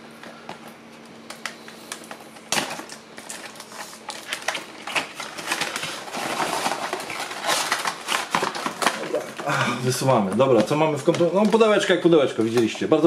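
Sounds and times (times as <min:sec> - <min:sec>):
cardboard rustling and scraping: 0:01.9 - 0:09.4.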